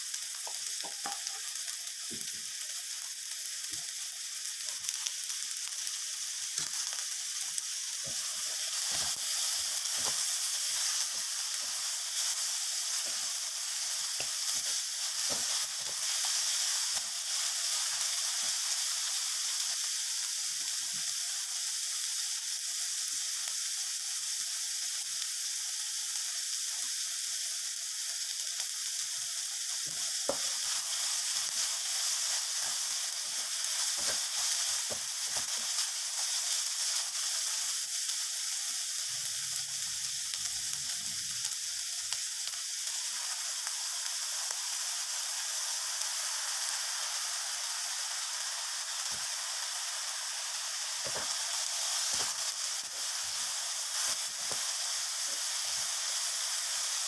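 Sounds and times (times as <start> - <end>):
food sizzling in a wok: 0.0 - 57.0
spatula scraping and knocking pan: 33.9 - 35.4, 51.0 - 51.4.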